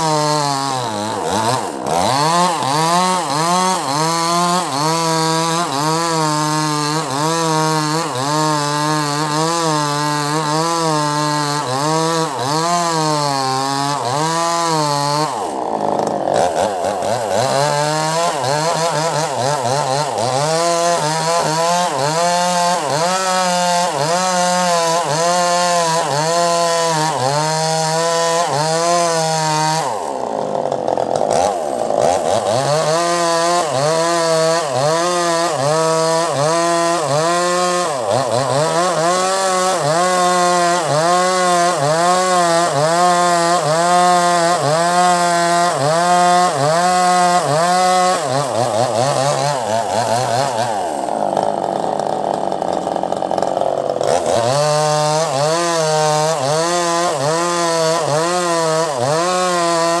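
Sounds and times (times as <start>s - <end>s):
chainsaw cutting log: 0.0s - 60.0s.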